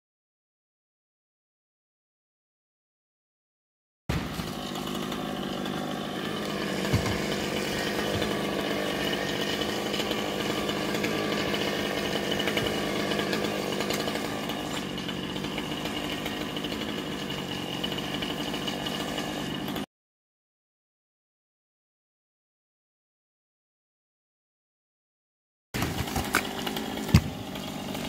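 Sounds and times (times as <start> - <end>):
chainsaw cutting wood: 4.1 - 19.9, 25.8 - 28.0.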